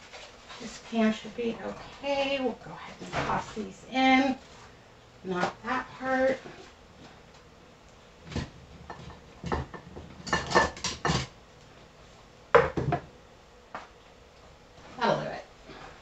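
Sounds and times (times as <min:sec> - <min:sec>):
metal cookware clanking: 0:08.9 - 0:11.3.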